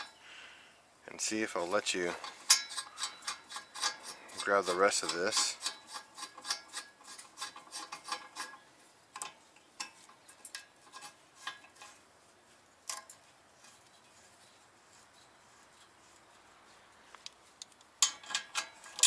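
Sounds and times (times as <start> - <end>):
metal puller jaws clinking: 2.1 - 8.6, 18.0 - 19.0.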